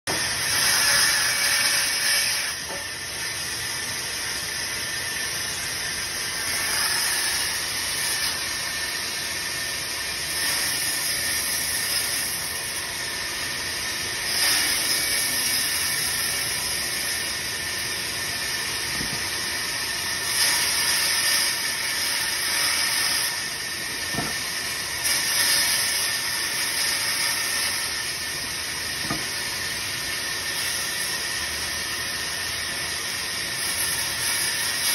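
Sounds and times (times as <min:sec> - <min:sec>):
band saw cutting wood: 0:00.1 - 0:34.9.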